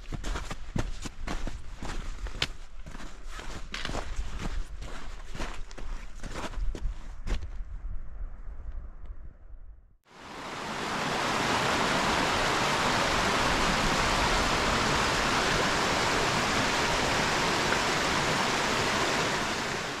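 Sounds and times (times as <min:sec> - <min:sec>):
stream rushing over stones: 0:10.1 - 0:20.0.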